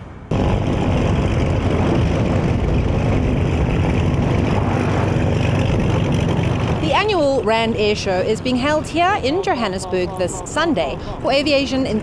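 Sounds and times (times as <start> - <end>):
propeller plane engine running: 0.0 - 12.0.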